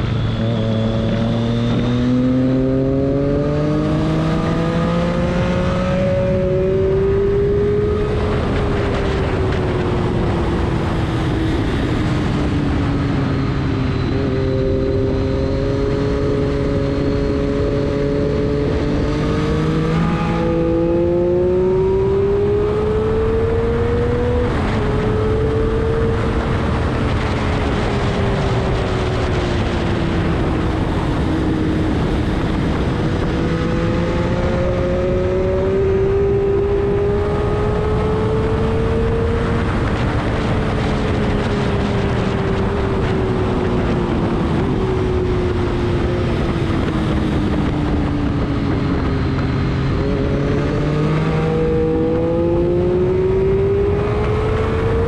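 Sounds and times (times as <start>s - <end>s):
steady rush of noise: 4.1s - 55.0s
race engine revving: 49.8s - 55.0s.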